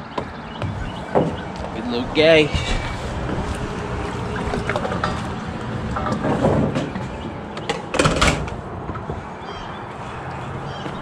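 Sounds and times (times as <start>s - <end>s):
knocks and rattles: 4.5s - 9.2s.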